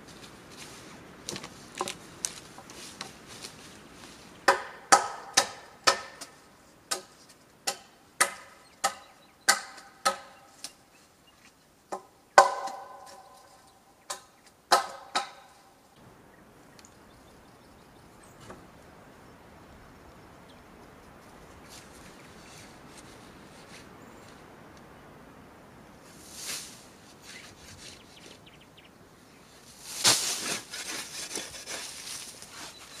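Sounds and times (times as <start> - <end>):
hand tool striking wood: 4.4 - 10.8, 11.9 - 13.3, 14.1 - 15.6.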